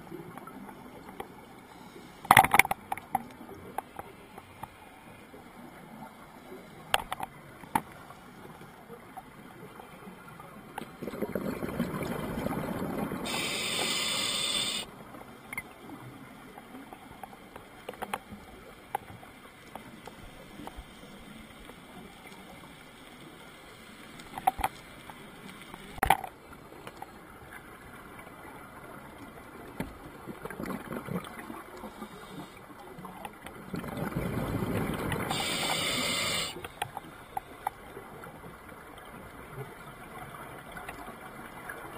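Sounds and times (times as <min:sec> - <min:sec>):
regulator hiss: 0:13.2 - 0:14.9, 0:35.3 - 0:36.6
underwater exhale bubbling: 0:33.8 - 0:36.6.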